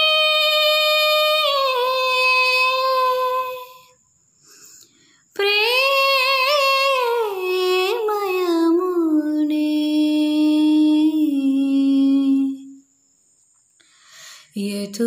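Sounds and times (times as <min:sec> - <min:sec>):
girl singing unaccompanied: 0:00.0 - 0:03.9, 0:05.3 - 0:12.9, 0:14.4 - 0:15.0.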